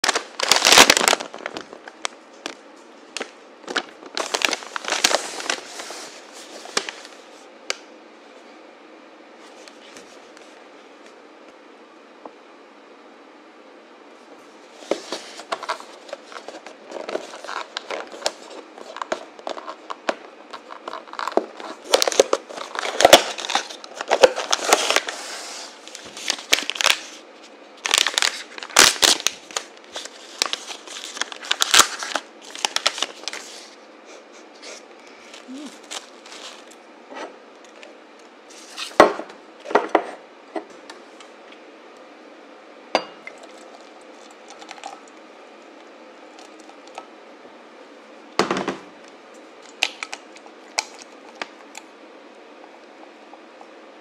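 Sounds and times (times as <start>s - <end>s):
paper packaging crinkling and tearing: 0.0s - 7.3s, 14.8s - 33.8s, 35.2s - 36.8s, 49.6s - 51.8s.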